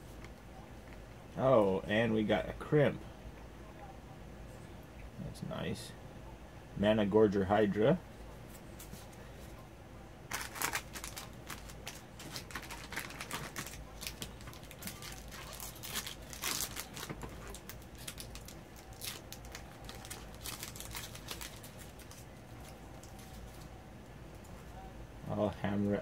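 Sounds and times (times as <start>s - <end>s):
foil wrapper crinkling: 10.3s - 23.7s
trading cards being handled: 10.3s - 23.8s.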